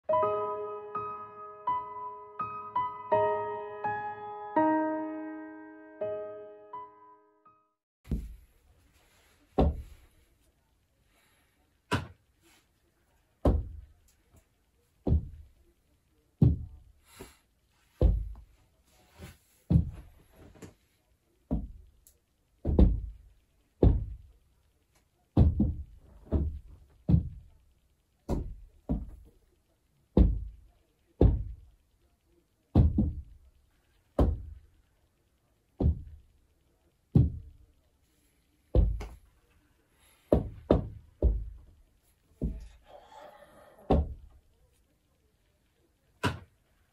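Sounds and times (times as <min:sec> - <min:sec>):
heavy knocking thuds: 0:09.6 - 0:10.0, 0:15.0 - 0:15.5, 0:18.0 - 0:18.5, 0:19.7 - 0:20.2, 0:22.6 - 0:24.3, 0:25.4 - 0:27.5, 0:30.2 - 0:30.6, 0:32.7 - 0:33.4, 0:35.8 - 0:36.2, 0:37.2 - 0:37.6, 0:38.8 - 0:39.2, 0:40.3 - 0:41.7, 0:42.4 - 0:42.8.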